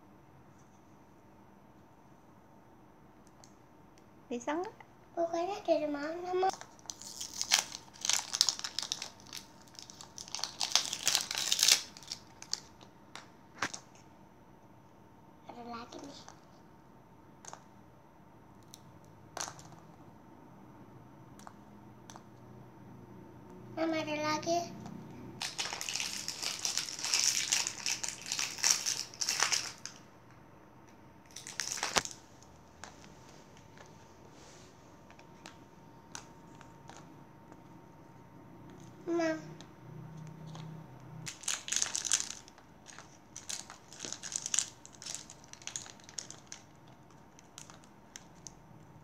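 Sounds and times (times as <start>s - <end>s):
plastic wrapping crinkling: 6.5s - 12.9s, 25.4s - 30.0s, 31.3s - 34.0s, 41.2s - 48.6s.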